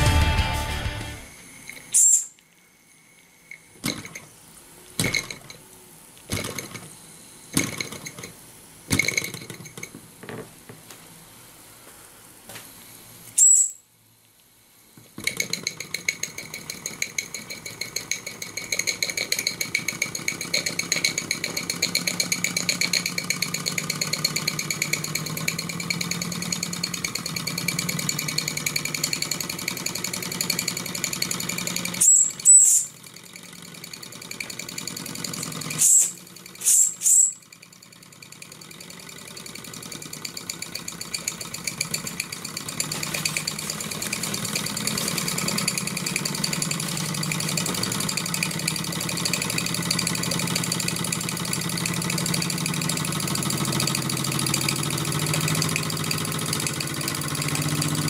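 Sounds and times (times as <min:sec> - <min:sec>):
toy steam whistle toots: 0:01.2 - 0:02.4, 0:13.4 - 0:13.8, 0:32.0 - 0:33.0, 0:35.7 - 0:37.5
steam engine chuffing: 0:15.8 - 0:58.0.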